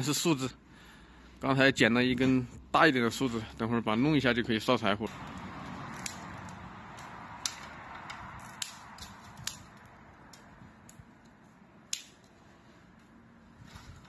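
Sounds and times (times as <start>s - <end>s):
dry branches snapping: 5.1s - 12.4s.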